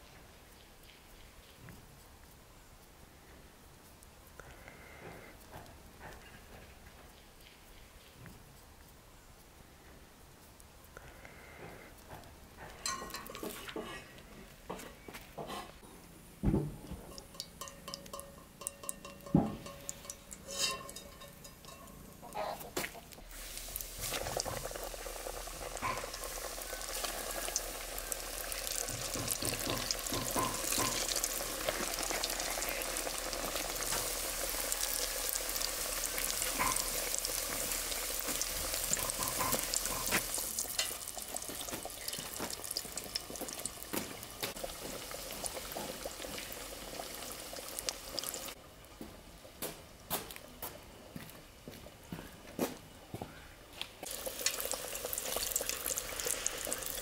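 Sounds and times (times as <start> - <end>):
food deep-frying in hot oil: 12.8 - 14.0, 16.4 - 22.4, 23.2 - 48.9, 54.0 - 57.0.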